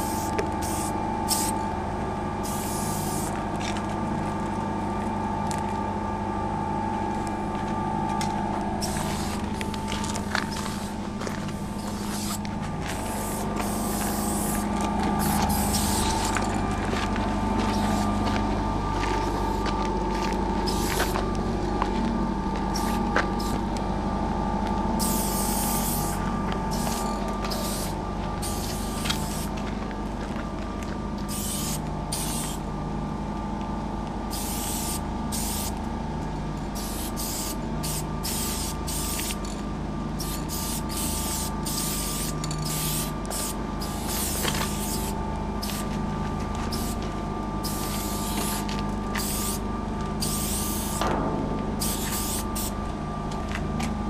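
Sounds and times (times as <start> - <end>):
spray-paint cans hissing: 0.0 - 1.6, 2.4 - 3.4, 8.8 - 16.3, 20.7 - 21.1, 22.7 - 23.6, 25.0 - 29.5, 31.3 - 32.6, 34.3 - 35.8, 36.8 - 39.4, 40.2 - 46.0, 46.7 - 47.0, 47.6 - 49.6, 50.2 - 51.0, 51.8 - 52.7
steady mechanical hum: 0.0 - 54.0.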